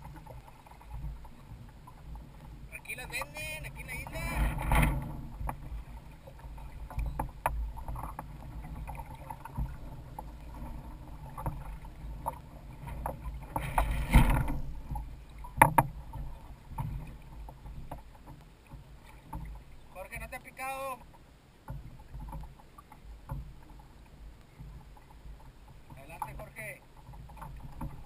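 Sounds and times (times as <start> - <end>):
wind rumble on microphone: 0.0 - 18.0
water washing along hulls: 0.0 - 28.0.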